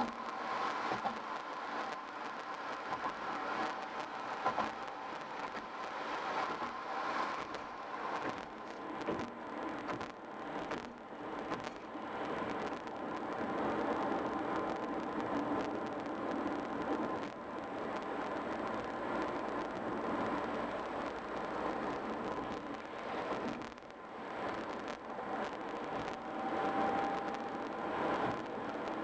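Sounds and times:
car road noise at highway speed: 0.0s - 29.0s
faint high-pitched whine: 0.0s - 29.0s.

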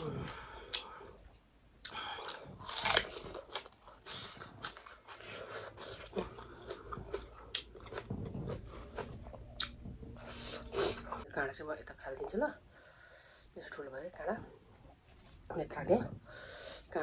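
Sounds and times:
crunchy chewing: 1.8s - 11.2s.

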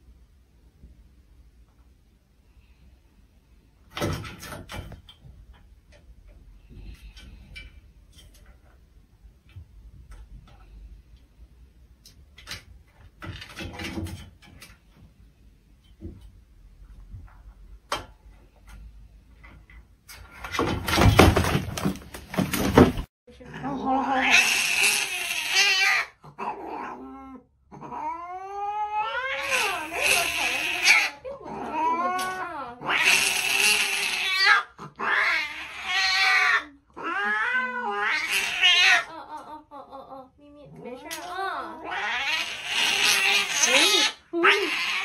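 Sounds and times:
cat wailing: 23.8s - 39.6s, 41.1s - 45.0s
cat hissing: 24.1s - 27.0s, 28.8s - 39.1s, 41.7s - 45.0s.

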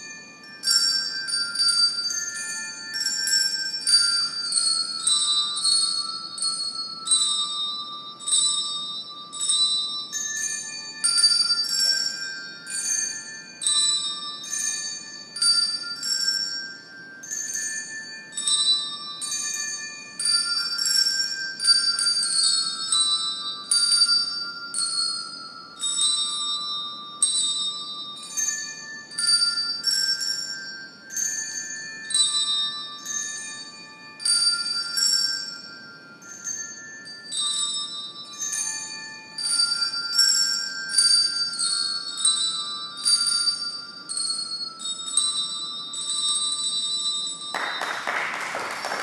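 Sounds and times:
handbells playing a melody: 0.0s - 49.0s
applause: 47.5s - 49.0s.

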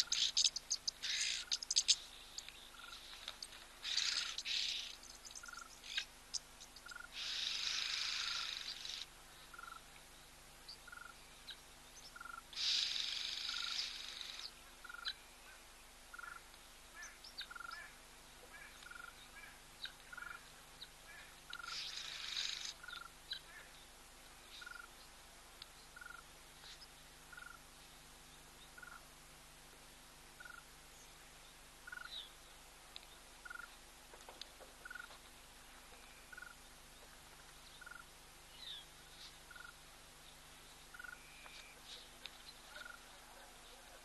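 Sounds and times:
small chirps and clicks: 0.0s - 10.1s, 21.5s - 23.1s, 32.9s - 35.2s.

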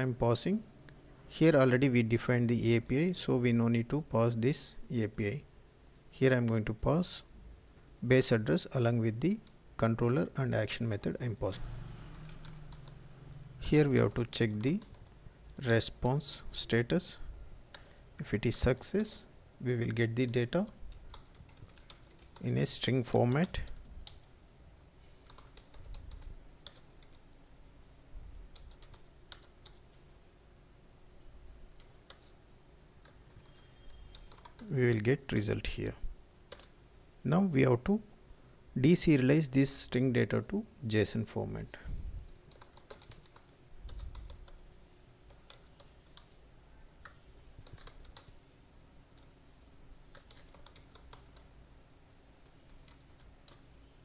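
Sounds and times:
faint keyboard typing: 4.4s - 6.7s, 7.7s - 8.0s, 10.8s - 24.4s, 25.0s - 27.3s, 28.3s - 30.1s, 31.7s - 32.4s, 33.0s - 35.7s, 36.5s - 36.8s, 42.3s - 48.4s, 49.1s - 51.6s, 52.4s - 53.8s.

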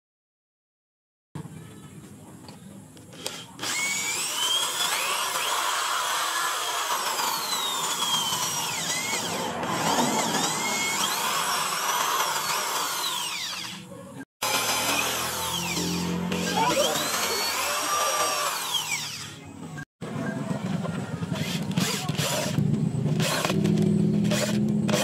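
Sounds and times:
electric drill boring into wood: 3.1s - 19.4s, 21.4s - 22.6s, 23.2s - 25.0s.

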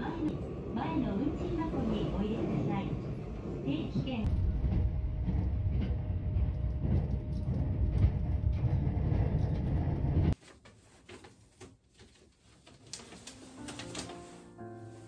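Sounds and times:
train rumble from inside: 0.0s - 10.4s.

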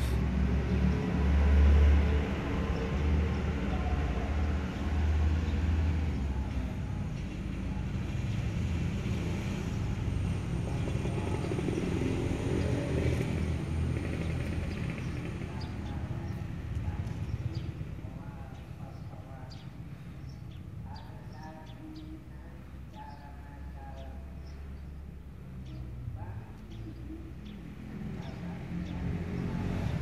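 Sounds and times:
vehicle engine rumble: 0.0s - 30.0s.

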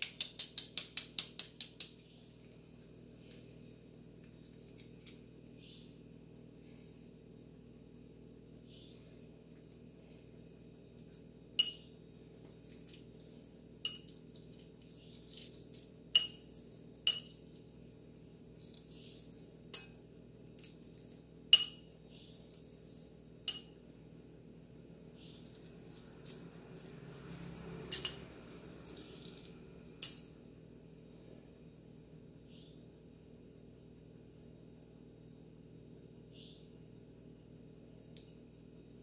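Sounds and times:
metal spoon clicking on egg: 0.0s - 2.0s.

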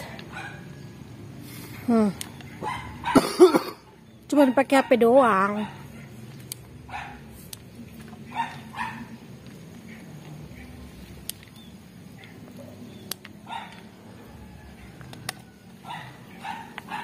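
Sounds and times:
dog barking: 0.3s - 0.7s, 2.6s - 3.3s, 4.6s - 6.2s, 6.9s - 7.3s, 8.3s - 9.2s, 13.4s - 13.9s, 15.8s - 17.0s.

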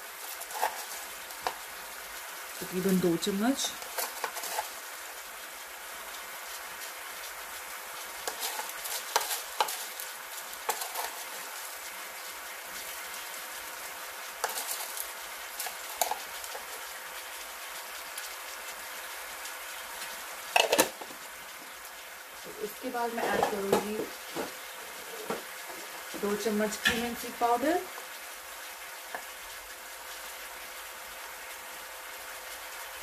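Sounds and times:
meat sizzling in a pan: 0.0s - 33.0s
pan clattering: 0.4s - 1.6s, 8.2s - 10.0s, 10.6s - 11.5s, 14.4s - 15.0s, 15.6s - 16.8s, 20.5s - 21.1s, 23.1s - 24.6s.

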